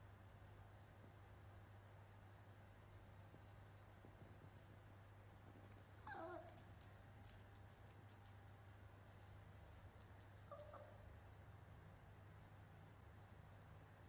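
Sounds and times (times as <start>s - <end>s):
puppy whimpering: 6.0s - 6.6s, 10.5s - 11.0s.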